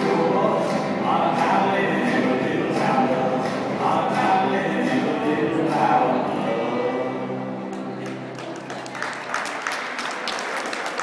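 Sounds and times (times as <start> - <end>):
music with singing voices: 0.0 - 8.8
applause: 7.7 - 11.0.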